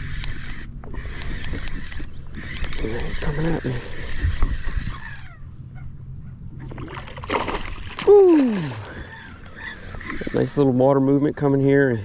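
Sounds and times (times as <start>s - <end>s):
fish splashing in water: 6.6s - 9.1s.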